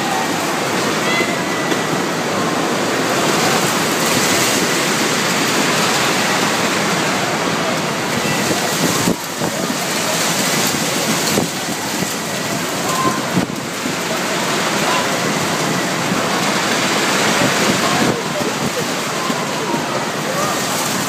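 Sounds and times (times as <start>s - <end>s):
heavy rain: 0.0s - 21.0s
strong wind: 0.0s - 21.0s.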